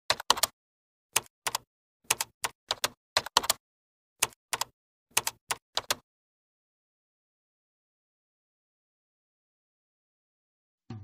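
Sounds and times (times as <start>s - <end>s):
keyboard clicks: 0.1s - 0.5s, 1.2s - 3.6s, 4.2s - 6.0s.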